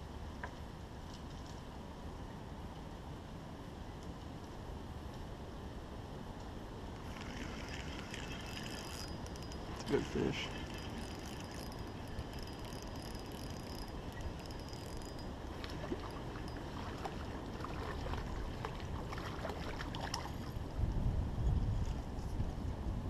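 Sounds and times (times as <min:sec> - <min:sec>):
wind on microphone: 0:20.4 - 0:23.0.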